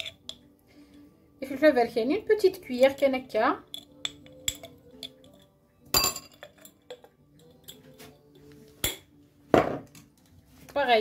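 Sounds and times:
spoon clinking ceramic bowl: 0:00.0 - 0:00.4, 0:02.7 - 0:07.9
faint background music: 0:00.0 - 0:11.0.

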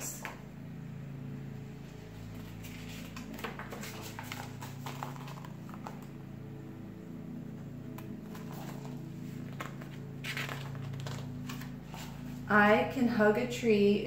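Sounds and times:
steady low hum: 0:00.0 - 0:14.0
paper rustles: 0:02.3 - 0:06.2, 0:08.2 - 0:12.4.

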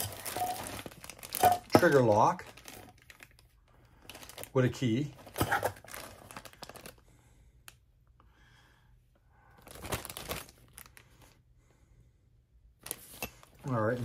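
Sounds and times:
plastic bags crinkling: 0:00.0 - 0:07.0, 0:09.6 - 0:11.0, 0:12.8 - 0:14.0.

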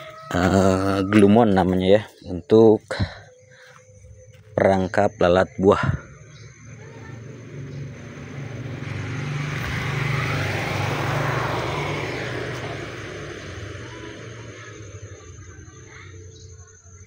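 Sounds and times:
small motorcycle passing by: 0:06.2 - 0:16.7.

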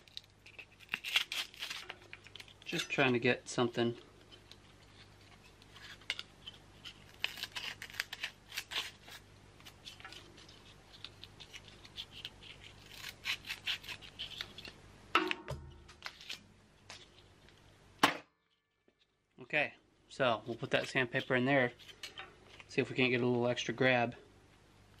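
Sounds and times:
sharp knock: 0:15.2 - 0:15.9.

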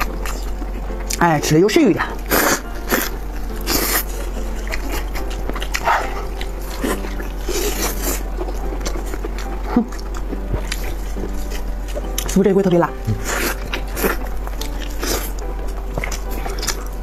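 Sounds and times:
wet chewing: 0:00.0 - 0:17.0
people slurping food: 0:02.2 - 0:08.6.

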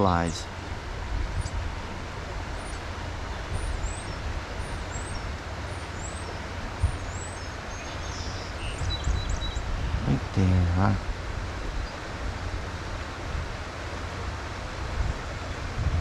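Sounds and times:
stream flowing water: 0:00.0 - 0:16.0
wind rumble on microphone: 0:00.0 - 0:16.0
small bird chirping: 0:02.6 - 0:02.8, 0:03.5 - 0:10.1.

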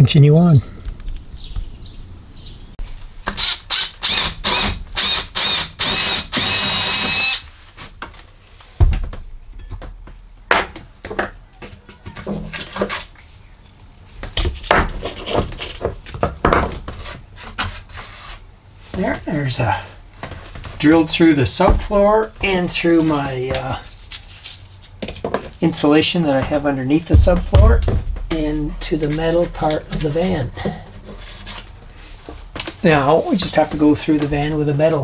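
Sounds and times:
power drill cutting plywood: 0:03.3 - 0:07.4
knocks and rattles of handling: 0:07.8 - 0:17.8, 0:20.1 - 0:34.6.

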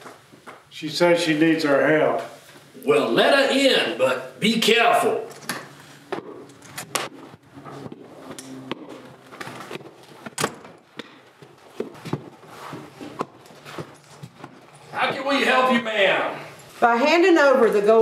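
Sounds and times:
footsteps on wooden floor: 0:06.1 - 0:14.9.

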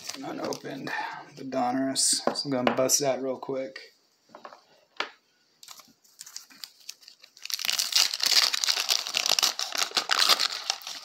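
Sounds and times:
wrapper crinkling as torn open: 0:00.0 - 0:00.8, 0:05.6 - 0:11.0.

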